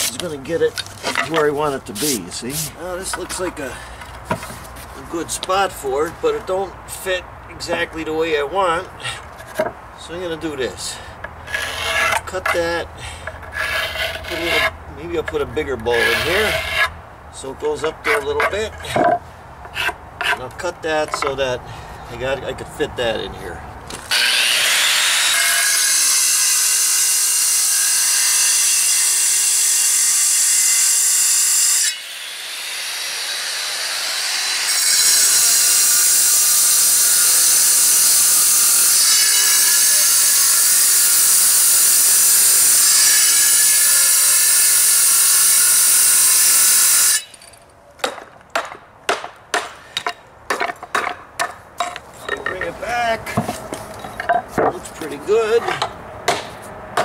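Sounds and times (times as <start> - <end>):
angle grinder cutting stone: 11.5 - 12.8, 13.4 - 16.9, 24.1 - 47.4.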